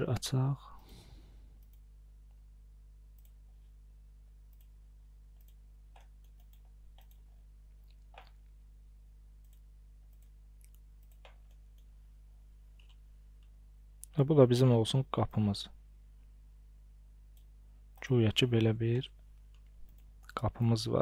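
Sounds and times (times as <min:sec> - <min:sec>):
low electrical hum: 0:00.0 - 0:21.0
computer mouse clicks: 0:01.6 - 0:01.9, 0:03.1 - 0:03.4, 0:04.5 - 0:08.5, 0:09.4 - 0:11.9, 0:12.7 - 0:14.2.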